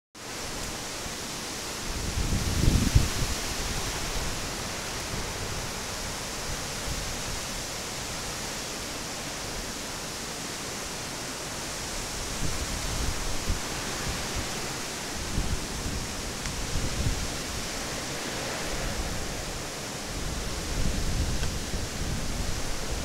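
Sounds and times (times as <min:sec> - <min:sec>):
wind and rain hissing: 0:00.2 - 0:23.0
wind buffeting microphone: 0:01.9 - 0:07.5, 0:12.0 - 0:23.0.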